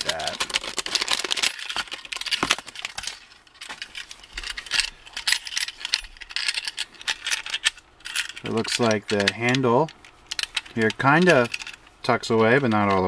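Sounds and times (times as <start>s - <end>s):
plastic bag crinkling: 0.0s - 7.7s.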